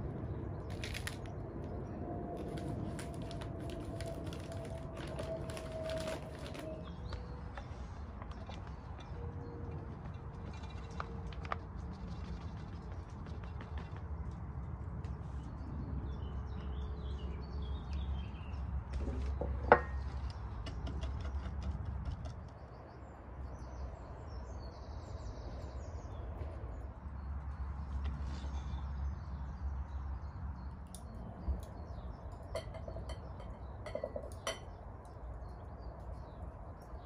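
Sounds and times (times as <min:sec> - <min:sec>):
metal cookware clinking: 0:32.6 - 0:34.8.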